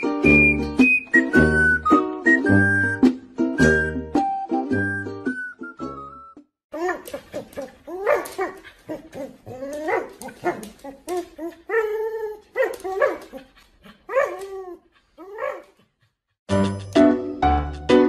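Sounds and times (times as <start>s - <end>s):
dog yipping whining and barking: 6.8s - 15.7s.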